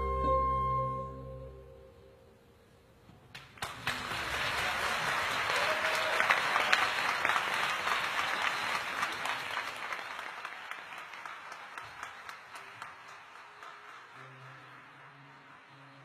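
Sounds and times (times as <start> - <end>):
audience applauding: 3.3 - 16.0.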